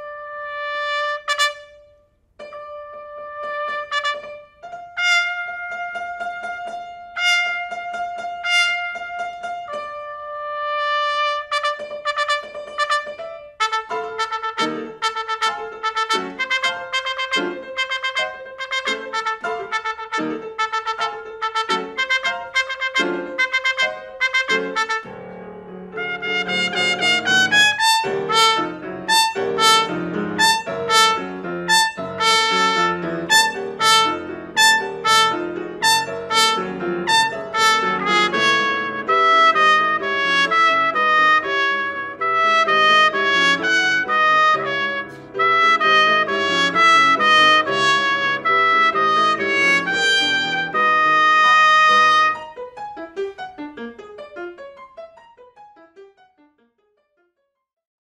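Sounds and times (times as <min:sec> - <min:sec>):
trumpet playing: 0:00.0 - 0:02.0, 0:02.8 - 0:52.6
piano playing: 0:00.0 - 0:57.1.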